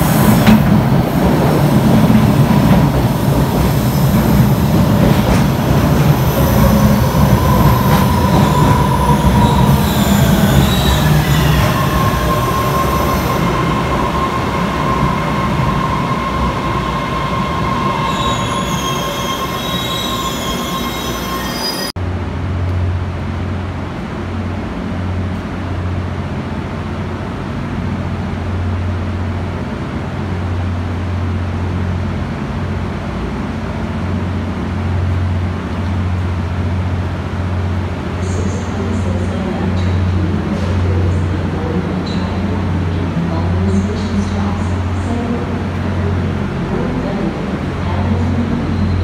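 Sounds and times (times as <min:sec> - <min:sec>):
subway train wheels squealing: 0:00.0 - 0:22.0, 0:38.2 - 0:49.0
train rumble: 0:00.0 - 0:49.0.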